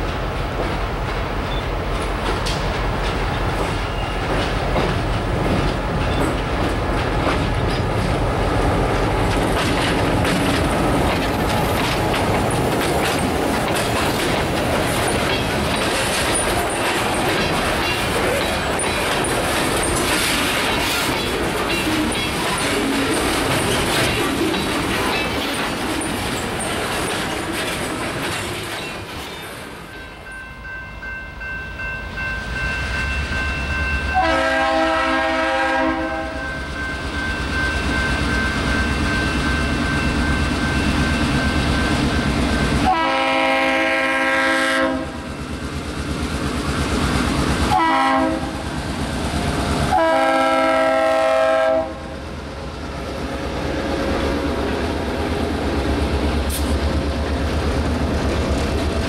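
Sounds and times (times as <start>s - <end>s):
locomotive air horn blasts: 34.1s - 36.4s, 42.8s - 45.2s, 47.7s - 48.6s, 49.9s - 52.1s.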